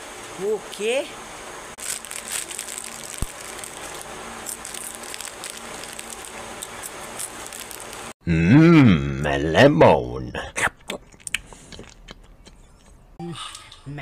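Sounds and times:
plastic snack packet crinkling: 1.8s - 8.2s.

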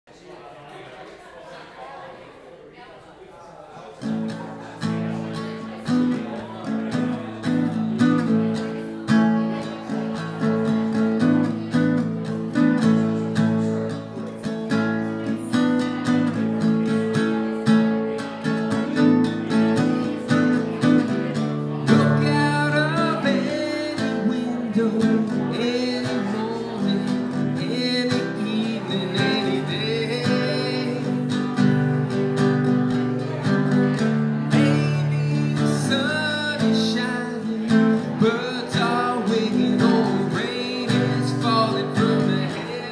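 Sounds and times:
acoustic guitar strumming: 4.0s - 42.9s
man singing: 18.7s - 31.9s, 34.0s - 42.9s.

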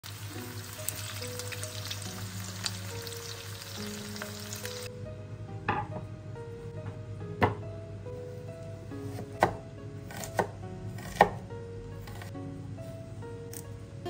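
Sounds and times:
patties sizzling in oil: 0.0s - 4.9s
background music: 0.0s - 14.0s
cutting board knocking on countertop: 5.7s - 6.1s, 6.8s - 7.6s.

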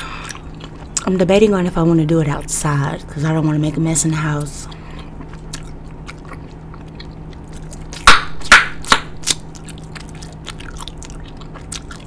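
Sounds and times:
gum chewing wet clicks: 4.4s - 12.0s
loud chewing smacks: 5.0s - 12.0s.

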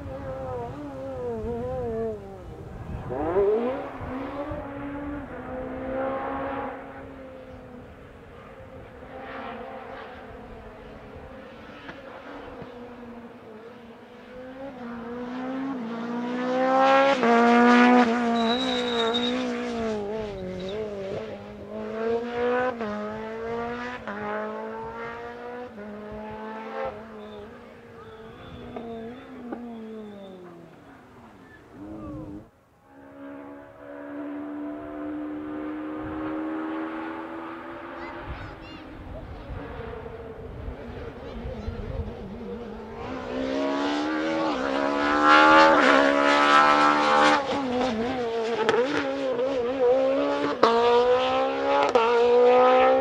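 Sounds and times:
rally car engine revving: 0.0s - 53.0s
short high squeal: 18.3s - 19.6s.

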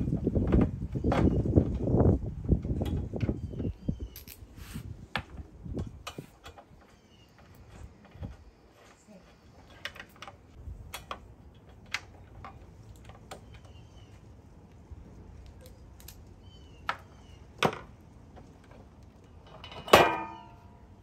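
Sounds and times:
cover clattering on metal plate: 19.7s - 20.6s.

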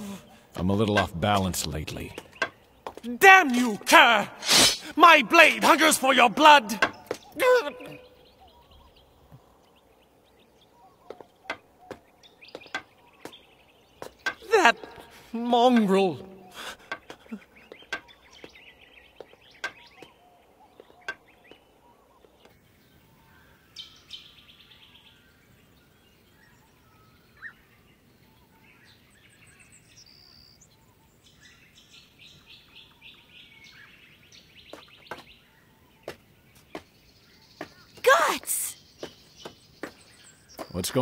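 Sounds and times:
small birds chirping: 0.0s - 41.0s
footsteps on stone floor: 2.1s - 3.8s, 11.0s - 15.9s, 16.8s - 22.6s, 34.7s - 35.4s, 39.0s - 41.0s
walking stick tapping on stone: 11.1s - 13.4s, 14.0s - 15.0s, 16.8s - 18.6s, 19.2s - 21.6s.

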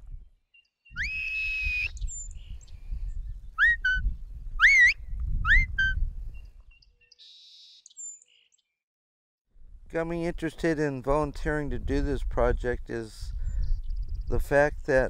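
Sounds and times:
shepherd's herding whistle: 0.9s - 2.0s, 3.6s - 6.0s.

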